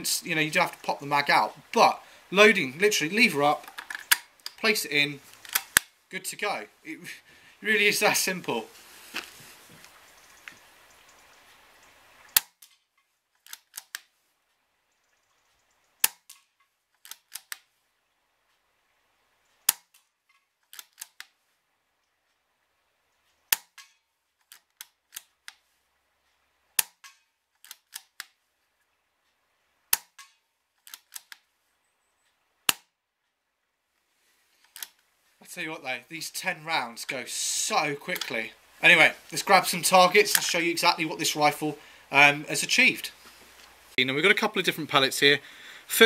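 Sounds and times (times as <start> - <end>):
cocking lever clicks: 3.6 - 4.6, 5.4 - 5.9, 13.4 - 14.1, 16.0 - 17.6, 20.7 - 21.3, 26.8 - 28.3, 29.9 - 31.4, 34.6 - 35.0, 38.2 - 38.4.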